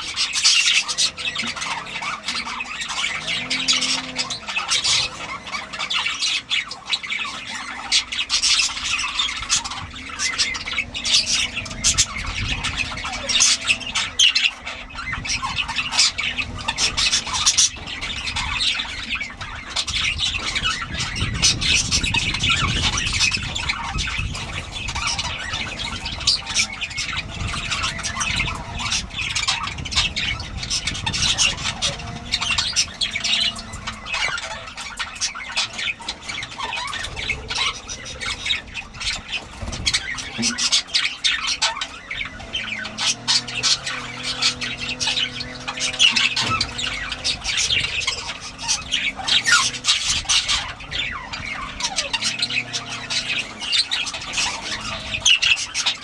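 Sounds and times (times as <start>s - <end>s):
budgerigars chattering and squawking: 0.0s - 56.0s.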